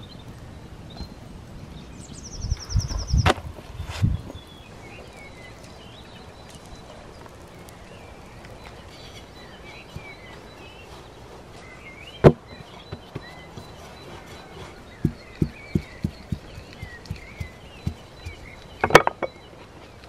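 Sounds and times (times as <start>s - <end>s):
birds chirping: 0.0s - 20.0s
small crackles: 3.3s - 20.0s
wooden spatula knocking on stone: 15.0s - 19.3s.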